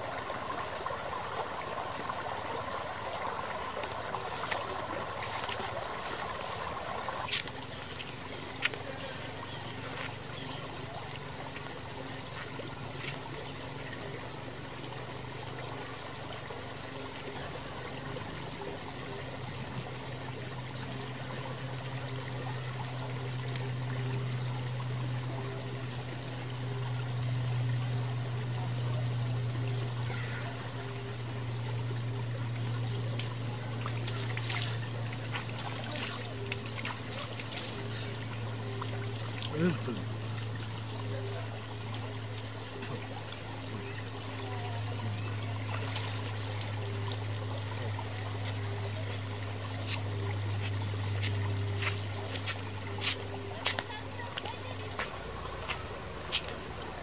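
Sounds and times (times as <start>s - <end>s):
low steady hum: 0.0s - 57.0s
water trickling in stream: 0.0s - 57.0s
water splashing onto face: 33.0s - 40.6s.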